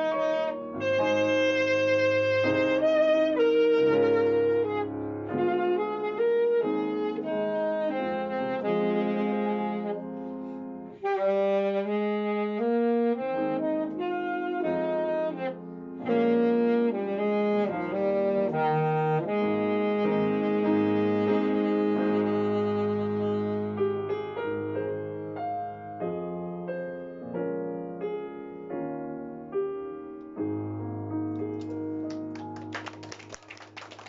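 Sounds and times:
alto saxophone melody: 0.0 - 25.0.

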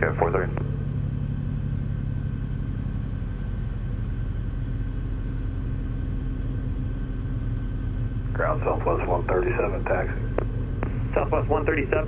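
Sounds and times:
piston aircraft engine humming: 0.0 - 12.0.

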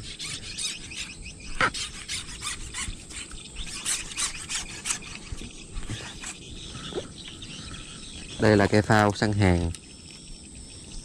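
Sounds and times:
fishing pole sections squeaking: 0.0 - 7.1.

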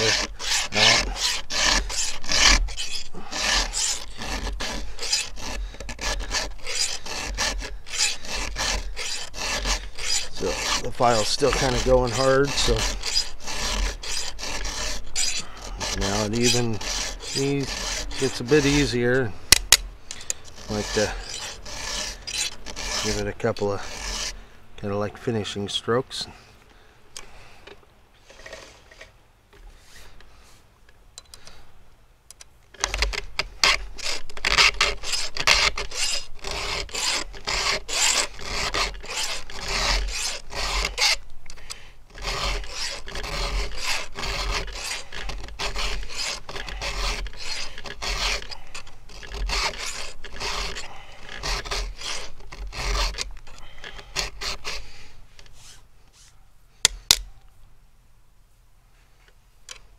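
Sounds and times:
file rasping on chainsaw chain: 0.0 - 19.4, 20.1 - 24.4, 32.8 - 41.2, 42.1 - 56.3.

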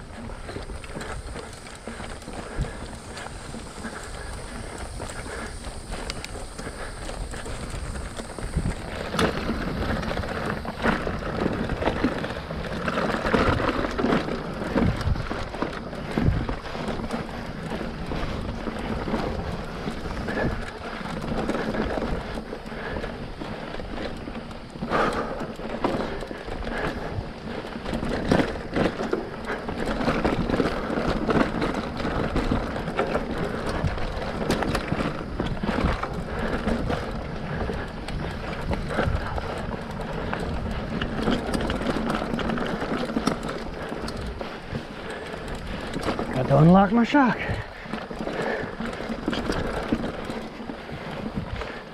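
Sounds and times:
bike rattling over bumps: 0.0 - 51.9
bike tyres on dirt trail: 0.0 - 51.9.

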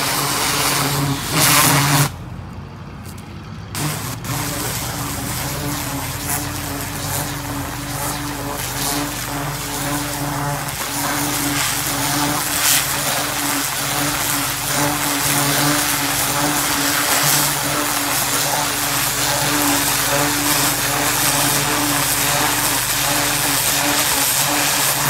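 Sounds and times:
water jet spraying into soil: 0.0 - 2.2, 3.7 - 25.0
pressure washer motor humming: 0.0 - 2.3, 3.2 - 25.0.

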